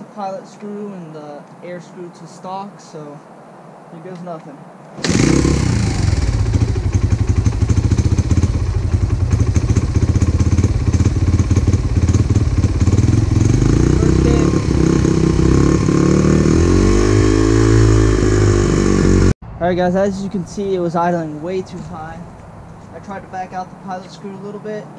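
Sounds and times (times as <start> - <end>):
motorcycle engine idling high: 5.0 - 19.3.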